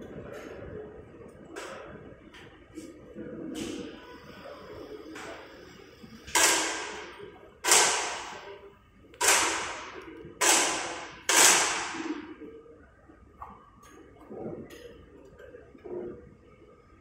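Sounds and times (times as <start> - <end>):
air rifle shots echoing: 6.3 - 8.6, 9.2 - 12.4.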